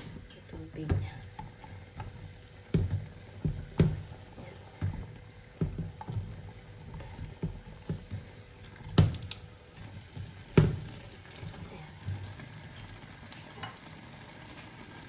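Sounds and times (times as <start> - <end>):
sauce bubbling in a pot: 0.0 - 15.0
wooden spatula stirring noodles: 0.0 - 15.0
soft knocks against a pot: 0.8 - 9.4, 10.5 - 12.2.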